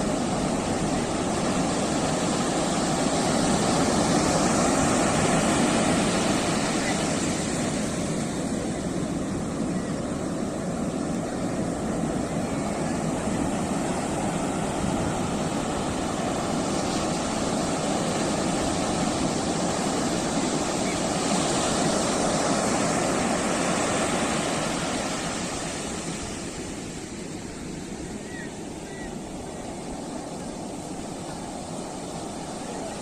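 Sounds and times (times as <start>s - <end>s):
sea surf breaking on beach: 0.0s - 33.0s.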